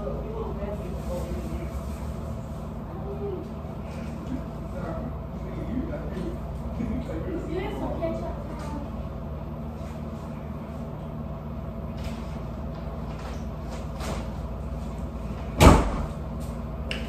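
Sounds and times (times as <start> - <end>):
low room hum: 0.0 - 17.0
loud thump: 15.6 - 16.2.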